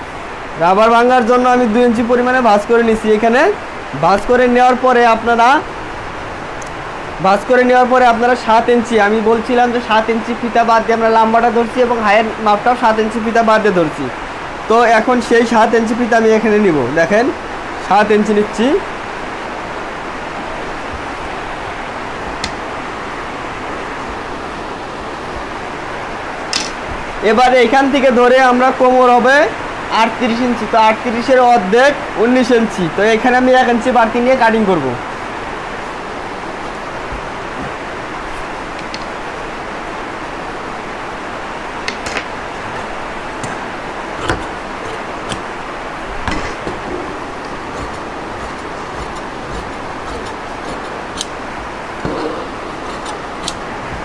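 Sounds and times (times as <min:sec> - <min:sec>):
rain hissing: 0:16.7 - 0:27.3, 0:34.0 - 0:54.0
tools clicking and tapping on table: 0:26.5 - 0:26.8.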